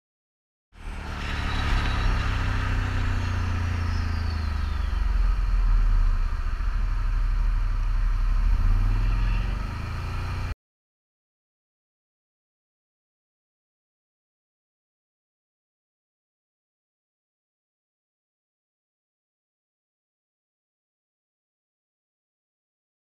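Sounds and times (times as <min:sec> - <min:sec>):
atv engine running: 0:00.8 - 0:10.5.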